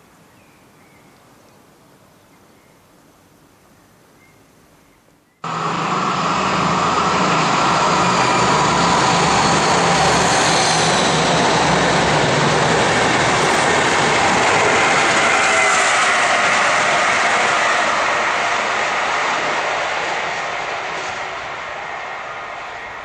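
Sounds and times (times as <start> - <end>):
low hum: 5.4 - 14.7
train wheels rushing on rail: 5.4 - 23.0.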